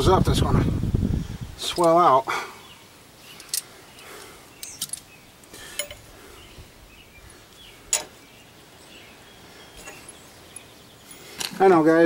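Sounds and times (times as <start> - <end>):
metal tools clinking: 3.3 - 6.1, 7.8 - 8.2, 9.8 - 11.6.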